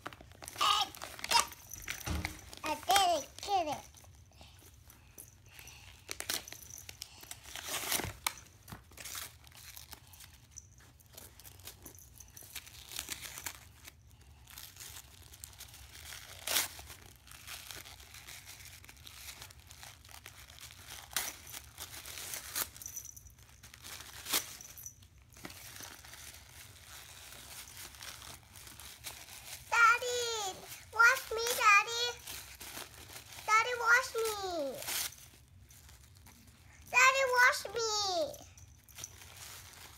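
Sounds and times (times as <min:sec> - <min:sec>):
paper crinkling and tearing: 0:00.0 - 0:03.8, 0:05.7 - 0:10.4, 0:12.6 - 0:22.8, 0:25.4 - 0:36.4, 0:38.8 - 0:39.9.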